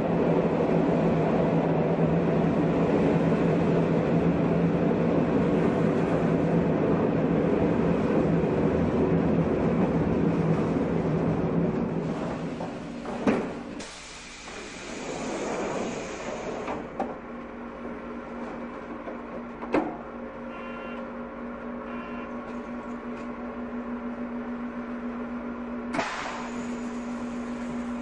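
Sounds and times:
electric train electrical hum: 0:00.0 - 0:28.0
air hiss: 0:13.8 - 0:16.7, 0:26.0 - 0:27.8.

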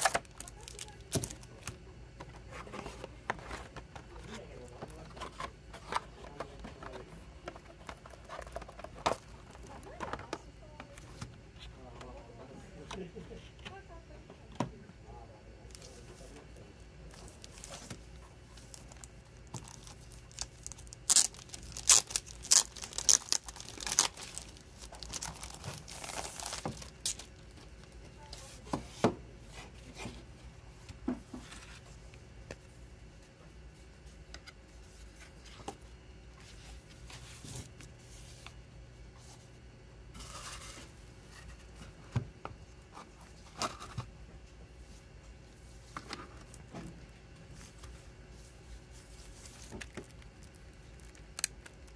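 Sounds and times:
packaging tearing and rustling: 0:00.0 - 0:01.6, 0:18.6 - 0:27.6.

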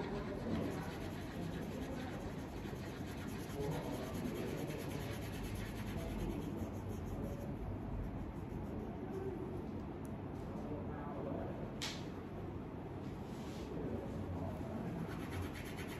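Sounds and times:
crayon scribbling on paper: 0:00.0 - 0:09.4, 0:15.0 - 0:15.9.

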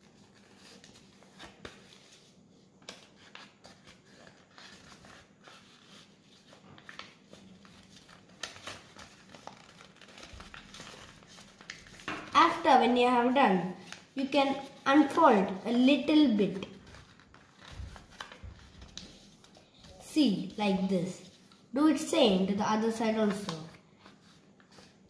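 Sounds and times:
paper rustling and crinkling: 0:00.0 - 0:12.6, 0:16.5 - 0:21.7, 0:23.0 - 0:25.0.

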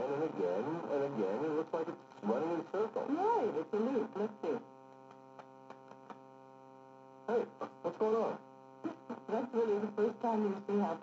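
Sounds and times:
muffled speech: 0:00.0 - 0:04.7, 0:07.3 - 0:11.0
steady electrical hum: 0:00.0 - 0:11.0.

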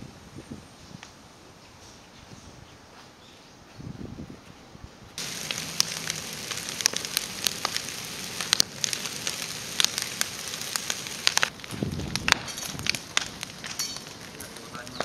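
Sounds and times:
bonfire crackling and popping: 0:05.2 - 0:15.0.

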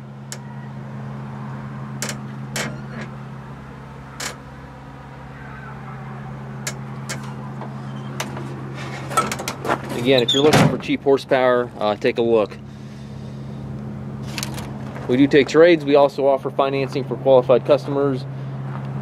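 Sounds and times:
tractor engine idling: 0:00.0 - 0:18.5
sharp clicks and knocks: 0:02.0 - 0:03.1, 0:06.6 - 0:08.5, 0:09.1 - 0:10.0.

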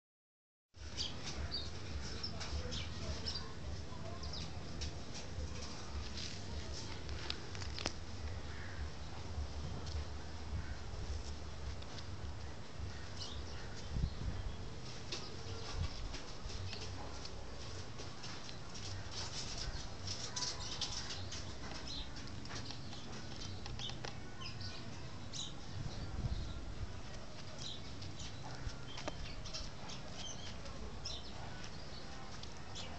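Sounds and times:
steady low rumble: 0:00.8 - 0:14.8
faint distant voices: 0:00.8 - 0:32.9
low background noise: 0:00.8 - 0:32.9
small birds chirping: 0:00.8 - 0:32.9
sharp clicks: 0:22.3 - 0:24.2.

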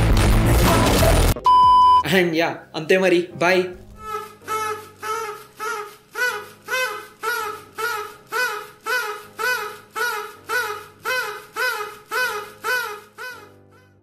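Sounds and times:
party blower tooting: 0:04.0 - 0:13.9.

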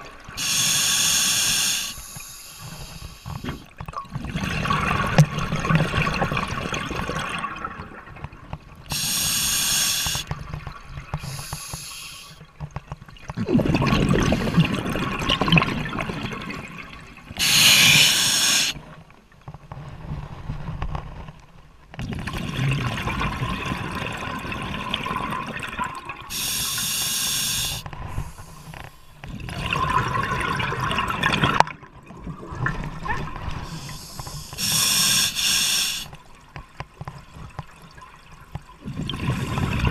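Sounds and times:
regulator hissing inhales: 0:00.4 - 0:03.6, 0:08.9 - 0:10.3, 0:11.2 - 0:12.4, 0:17.4 - 0:18.8, 0:26.3 - 0:29.0, 0:33.7 - 0:36.1
bubbling exhales underwater: 0:13.4 - 0:16.8.

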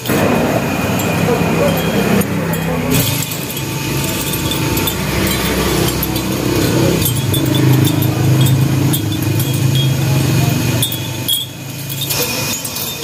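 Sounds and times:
chain links clinking: 0:00.0 - 0:13.0
engine running: 0:00.0 - 0:13.0.

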